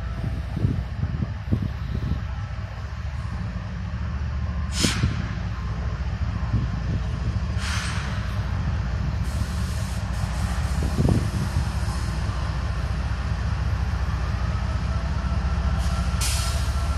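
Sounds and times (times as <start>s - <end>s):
wind buffeting microphone: 0.0s - 16.2s
diesel locomotive rumbling: 0.0s - 16.9s.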